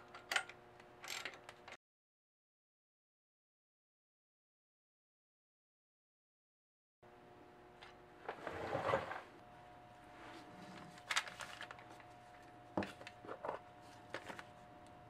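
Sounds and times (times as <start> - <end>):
faint steady hum: 7.1 - 15.0.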